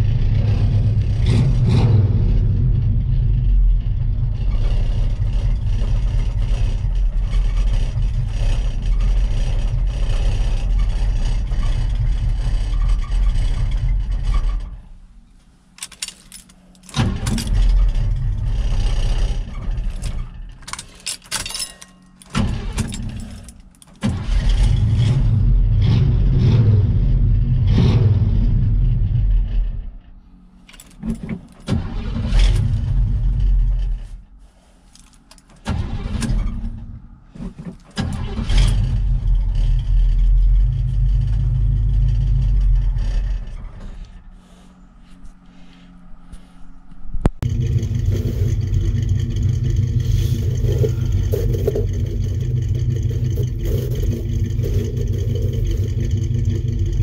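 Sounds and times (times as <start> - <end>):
truck engine running: 0.0 - 20.9, 28.5 - 57.0
ignition clicks: 15.7 - 17.8.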